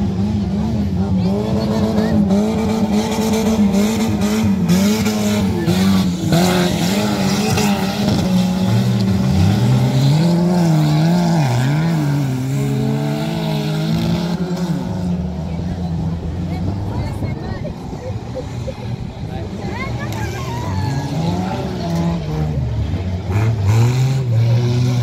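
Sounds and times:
race car engines revving: 0.0 - 25.0.

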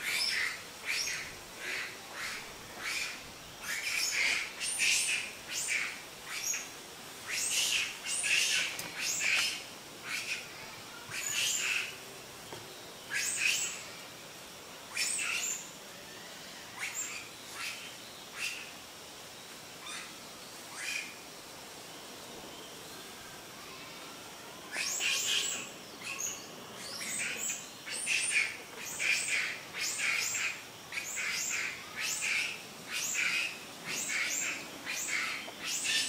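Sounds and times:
birds chirping: 0.0 - 14.1, 24.7 - 36.0.

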